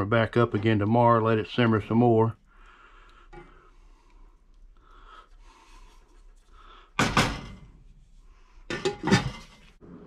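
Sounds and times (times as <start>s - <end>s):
spoon stirring thick chili: 0.3s - 6.9s.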